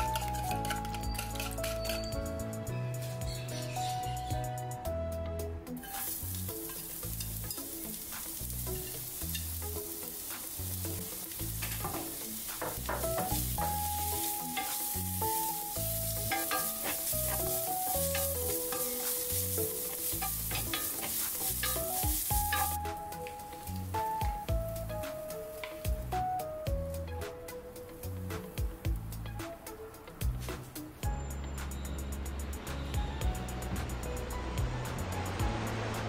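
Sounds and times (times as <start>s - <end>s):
background music: 0.0s - 36.0s
carrots sizzling in oil: 5.8s - 26.5s
wooden spatula scraping pan: 11.6s - 22.8s.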